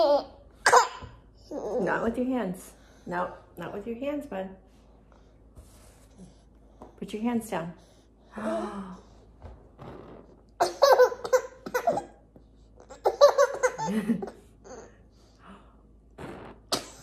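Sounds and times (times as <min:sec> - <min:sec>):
baby belly-laughing: 0:10.6 - 0:12.2, 0:12.8 - 0:14.9.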